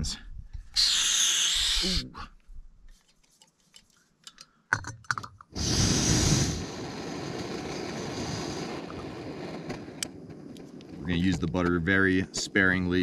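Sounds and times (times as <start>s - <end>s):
handling clicks and knocks: 3.3s - 5.5s.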